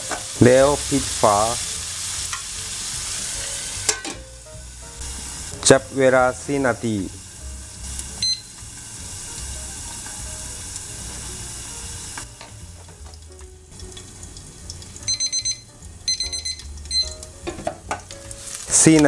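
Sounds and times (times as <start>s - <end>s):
food sizzling in a frying pan: 0.0s - 19.0s
kitchen timer beep: 8.2s - 8.5s, 15.0s - 17.3s
timer alarm beeping rapidly: 8.2s - 8.5s, 15.1s - 17.2s.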